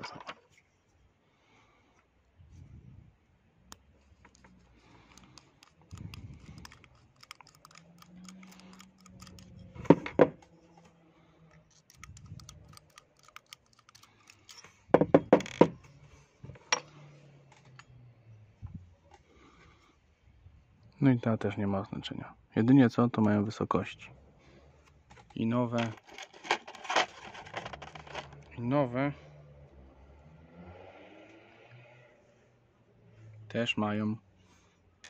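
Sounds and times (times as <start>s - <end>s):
small metal parts clicking: 5.0s - 10.5s, 11.5s - 15.6s
screwdriver working metal: 5.1s - 10.1s, 11.5s - 14.8s.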